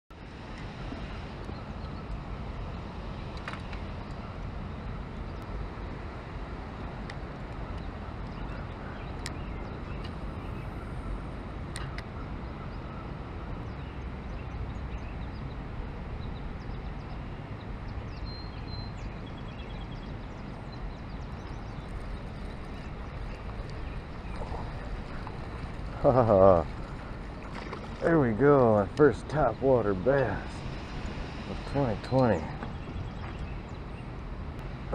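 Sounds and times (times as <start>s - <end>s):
wind buffeting microphone: 0.1s - 34.9s
river water rushing: 21.6s - 32.8s.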